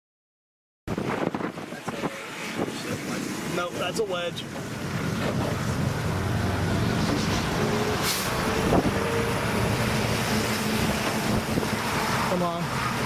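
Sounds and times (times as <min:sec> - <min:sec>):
road vehicle rumbling: 0:00.9 - 0:13.0
short hiss: 0:08.0 - 0:08.4.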